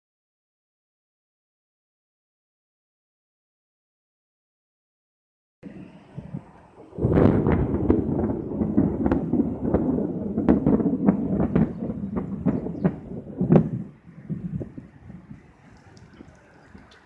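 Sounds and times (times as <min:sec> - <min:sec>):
thunder clap and rolling rumble: 0:05.6 - 0:17.0.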